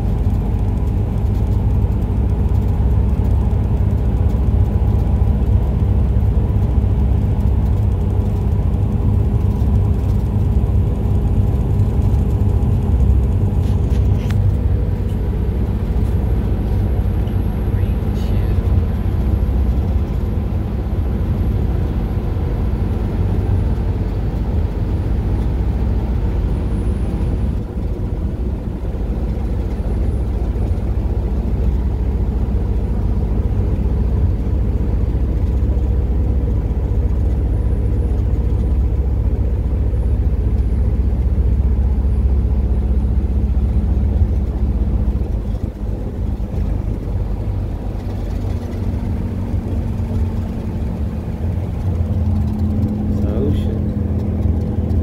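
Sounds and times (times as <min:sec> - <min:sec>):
bus engine drone: 0:00.0 - 0:55.0
road noise: 0:00.0 - 0:55.0.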